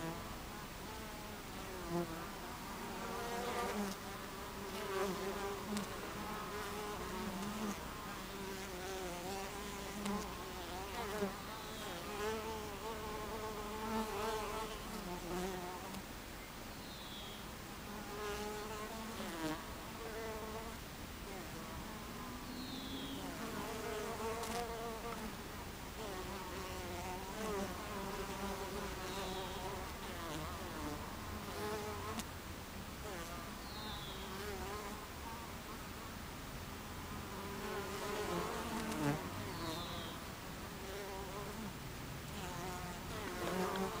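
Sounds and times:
bees buzzing: 42.3s - 44.0s.

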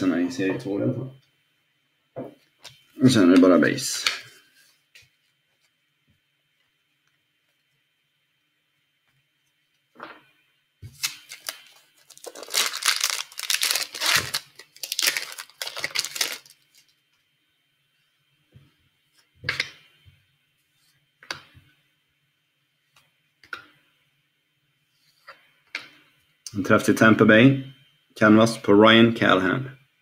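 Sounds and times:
cards rustling: 10.9s - 16.9s
foil pack crinkling and tearing: 10.9s - 17.0s.

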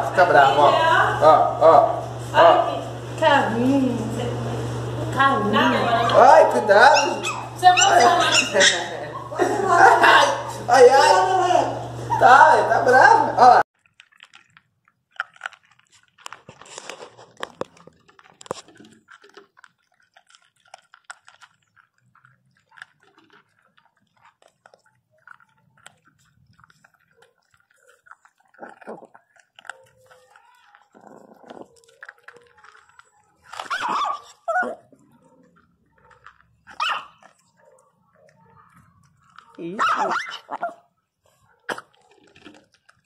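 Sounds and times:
dogs crunching dry kibble: 0.0s - 43.0s
dog barking: 6.2s - 11.3s, 33.6s - 38.7s, 39.7s - 42.2s.

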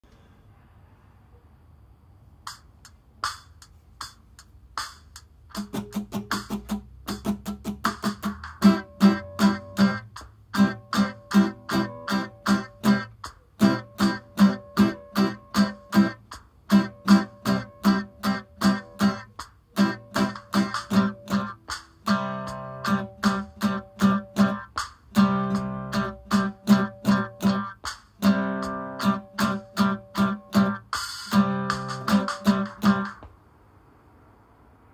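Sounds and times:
acoustic guitar strumming: 5.5s - 33.3s.

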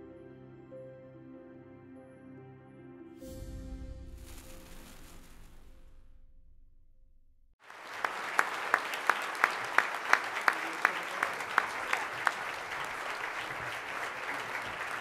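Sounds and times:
audience applauding: 7.6s - 15.0s
nearby hands clapping evenly: 7.6s - 15.0s.

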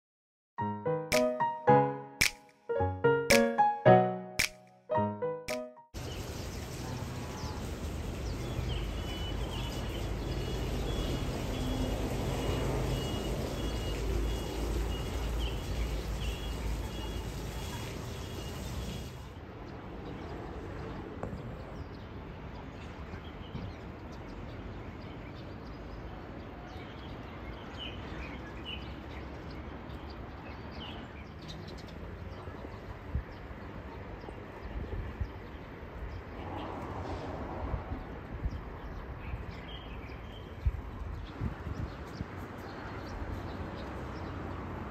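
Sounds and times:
small birds chirping: 6.0s - 26.0s.

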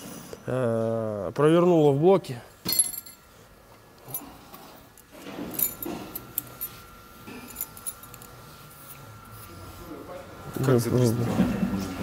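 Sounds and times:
metal parts clinking: 2.6s - 3.2s, 5.5s - 6.7s.

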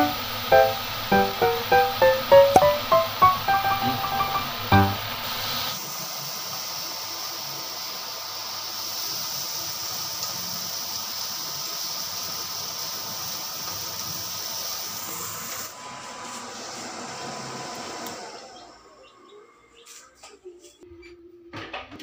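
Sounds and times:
range hood fan humming: 0.0s - 5.7s
meat sizzling in a frying pan: 5.1s - 15.7s.

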